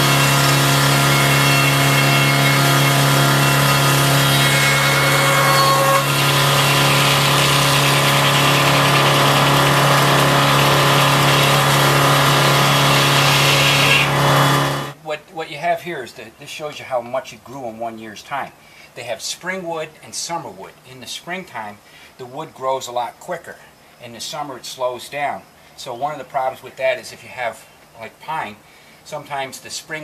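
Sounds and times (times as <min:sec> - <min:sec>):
machinery humming: 0:00.0 - 0:15.0
saw blade ripping through log: 0:00.0 - 0:15.0.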